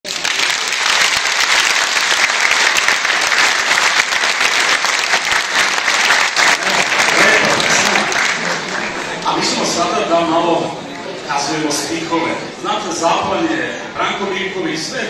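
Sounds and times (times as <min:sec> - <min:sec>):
audience applause: 0:00.0 - 0:10.0.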